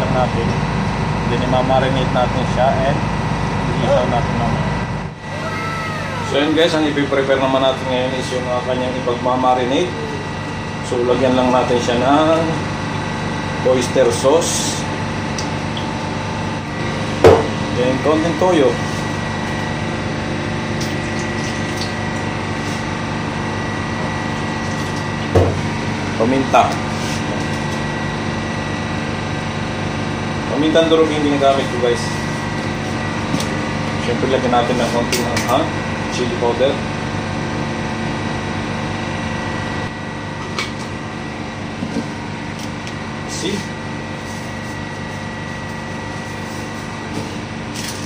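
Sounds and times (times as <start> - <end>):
machinery drone: 0.0 - 35.1
thin whine: 1.4 - 36.4.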